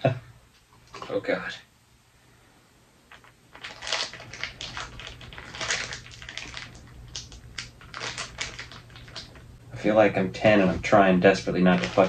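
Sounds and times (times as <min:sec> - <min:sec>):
slime squelching and crackling: 0:03.1 - 0:09.6, 0:11.5 - 0:12.0.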